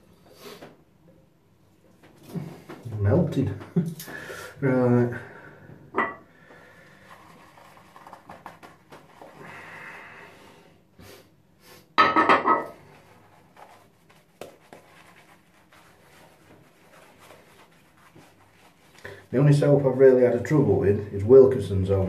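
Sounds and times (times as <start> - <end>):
shaving brush scrubbing scalp: 6.9 - 9.4, 12.9 - 20.4.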